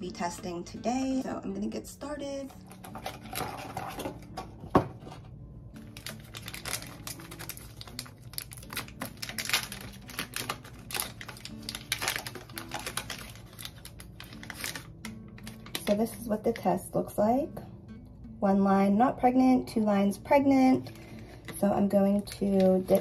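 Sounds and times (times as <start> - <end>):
foil wrapper crinkling: 2.6 - 4.4, 5.8 - 16.5, 20.8 - 21.6, 22.2 - 23.0
cardboard box opened: 2.8 - 5.3
box knocking on counter: 4.4 - 5.2.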